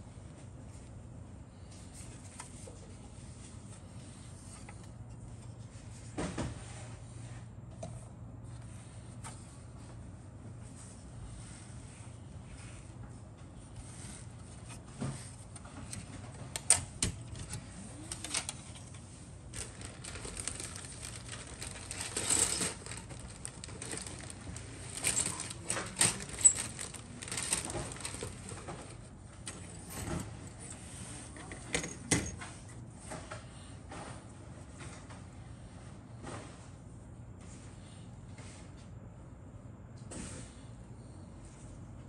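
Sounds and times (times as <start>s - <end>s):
plastic parts clicking and clattering: 19.6s - 30.2s.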